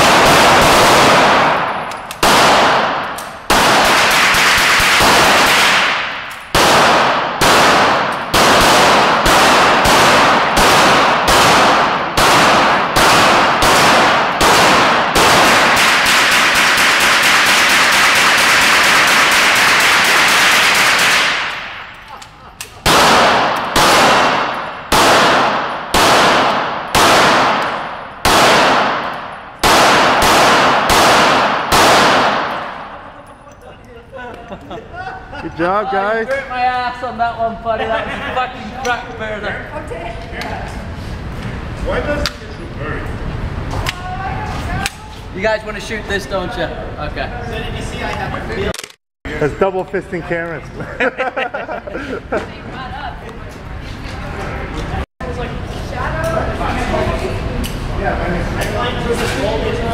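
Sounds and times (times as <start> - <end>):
gunshots echoing indoors: 0.0 - 33.3.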